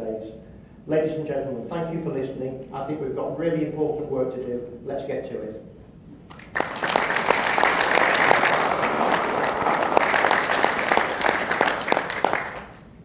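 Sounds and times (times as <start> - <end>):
audience applauding: 6.3 - 12.8.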